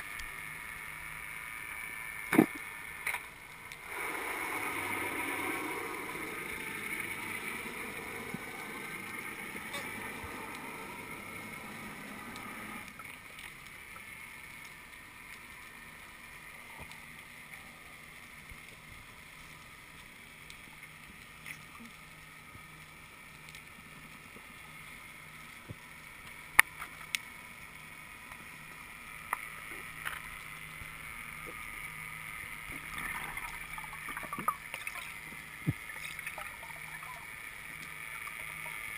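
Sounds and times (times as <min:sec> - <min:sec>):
faint low hum: 0:00.0 - 0:38.9
underwater rushing hiss: 0:03.8 - 0:13.2.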